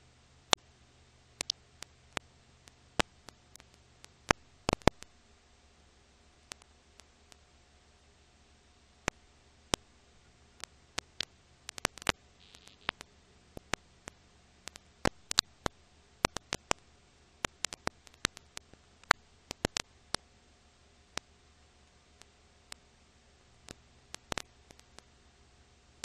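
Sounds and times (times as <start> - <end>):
faint steady hum and hiss: 0.0 - 26.0
film crackle clicks and pops: 1.4 - 5.2, 6.4 - 7.5, 9.0 - 20.3, 21.1 - 25.2.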